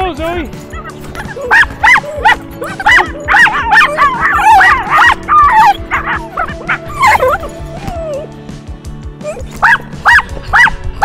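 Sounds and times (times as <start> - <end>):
music playing: 0.0 - 11.0
small dog yipping and barking: 1.1 - 8.3, 9.2 - 10.8.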